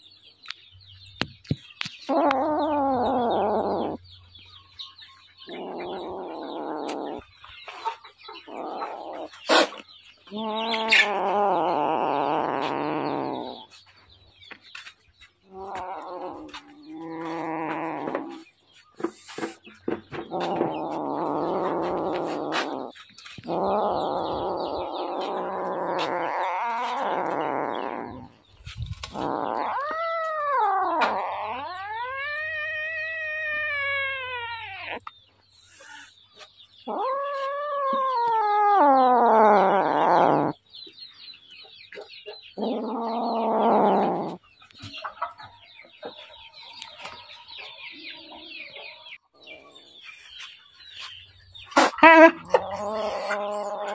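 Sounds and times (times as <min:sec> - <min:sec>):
kittens yowling: 0:02.0 - 0:04.0, 0:05.4 - 0:07.3, 0:08.4 - 0:13.7, 0:15.5 - 0:18.4, 0:20.2 - 0:28.4, 0:29.0 - 0:36.2, 0:36.8 - 0:40.6, 0:42.6 - 0:44.4, 0:51.8 - 0:53.9
kittens growling: 0:02.0 - 0:04.2, 0:05.4 - 0:07.6, 0:08.3 - 0:13.8, 0:15.4 - 0:36.2, 0:36.8 - 0:40.6, 0:42.6 - 0:45.0, 0:51.7 - 0:53.9.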